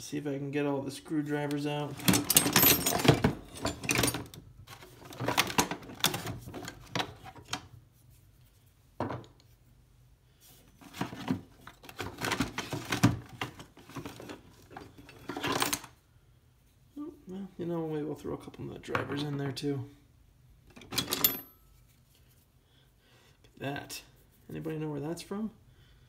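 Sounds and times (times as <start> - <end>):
screwdrivers clinking and rattling: 1.9 - 7.6, 11.2 - 15.9, 20.7 - 21.8.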